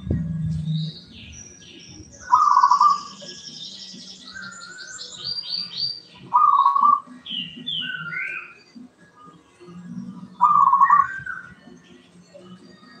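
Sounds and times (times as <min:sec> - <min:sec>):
sparrow chirping: 0:00.4 - 0:08.8, 0:10.2 - 0:11.8
dove cooing: 0:02.2 - 0:03.4, 0:06.3 - 0:07.1, 0:10.2 - 0:11.6.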